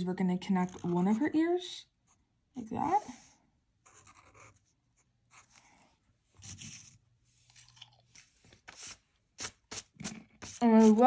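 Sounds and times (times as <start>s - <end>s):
faint chewing of food: 7.4s - 8.2s.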